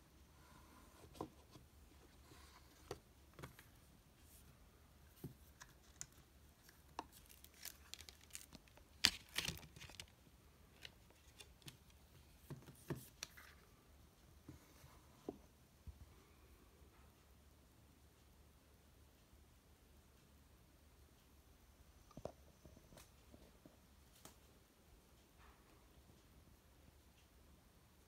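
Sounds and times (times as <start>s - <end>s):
paper rustling: 5.2s - 10.1s.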